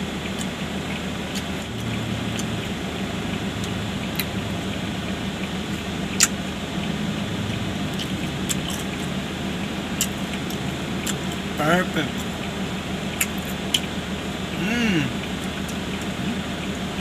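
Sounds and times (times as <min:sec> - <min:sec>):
air conditioning: 0:00.0 - 0:17.0
idling car engine hum: 0:00.0 - 0:17.0.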